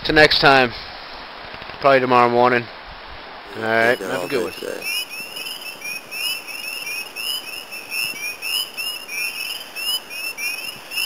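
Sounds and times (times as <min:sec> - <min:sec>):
frogs peeping in chorus: 0:03.5 - 0:11.0.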